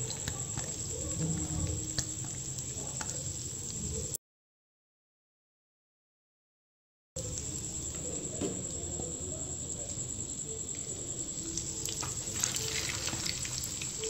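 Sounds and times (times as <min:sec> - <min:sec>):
oil sizzling in frying pan: 0:00.0 - 0:04.2, 0:10.7 - 0:14.0.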